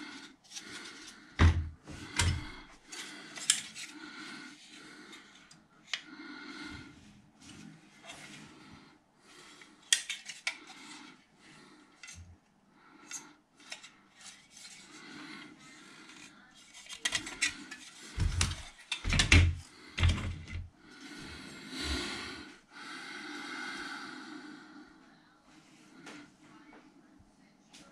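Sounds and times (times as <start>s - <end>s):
plastic parts clicking and rattling: 2.2s - 3.9s, 16.1s - 20.6s
plastic clattering and knocks: 18.2s - 20.6s.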